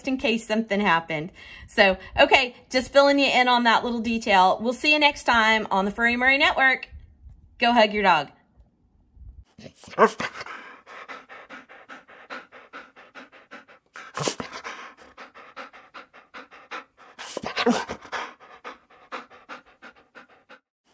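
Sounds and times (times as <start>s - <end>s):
dog panting: 9.6s - 20.9s.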